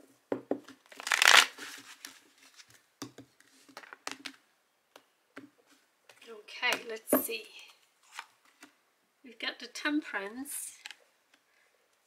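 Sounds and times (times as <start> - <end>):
cards being shuffled: 0.7 - 4.4.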